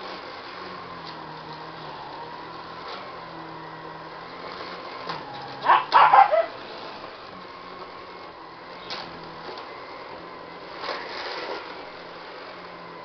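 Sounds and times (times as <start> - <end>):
vacuum cleaner humming: 0.0 - 13.0
puppy barking: 5.6 - 6.6.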